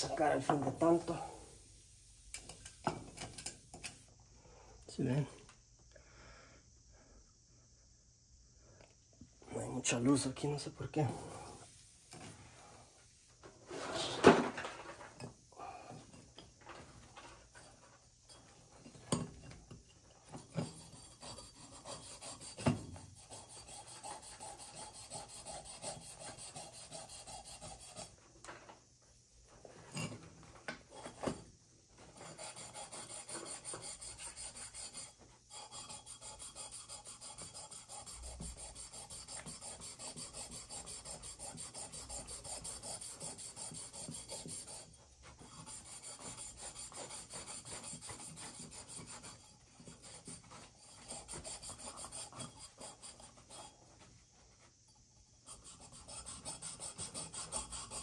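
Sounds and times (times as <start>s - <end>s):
rhythmic abrasive rubbing on pipe: 20.4s - 28.2s, 32.1s - 54.0s, 55.4s - 58.0s.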